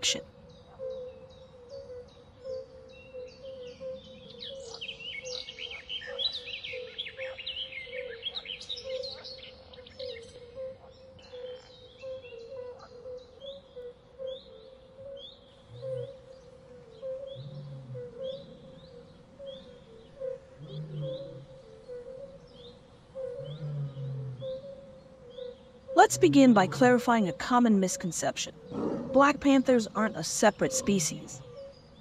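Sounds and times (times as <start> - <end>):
birds chirping and calling: 0.0 - 32.0
pulsing low drone: 15.6 - 22.6, 23.2 - 25.1.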